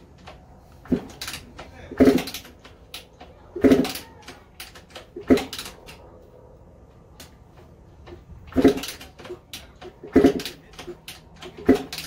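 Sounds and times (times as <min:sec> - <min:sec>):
dirt bike kick-start clunks: 0:00.8 - 0:02.6, 0:08.1 - 0:12.0.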